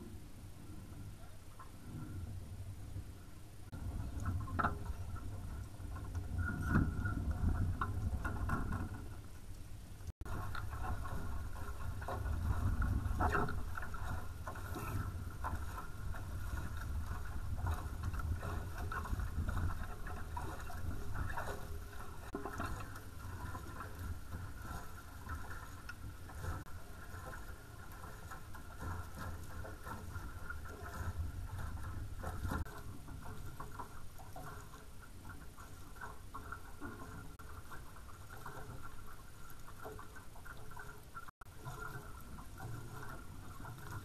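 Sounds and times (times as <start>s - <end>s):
water rushing along hulls: 0.0s - 44.0s
wind buffeting microphone: 1.8s - 9.4s, 10.0s - 27.4s.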